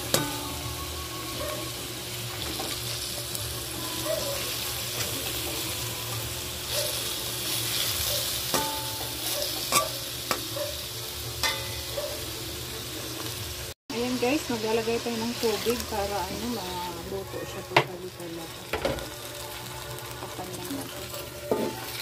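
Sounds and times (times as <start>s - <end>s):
chicken sizzling in hot oil: 0.0s - 22.0s.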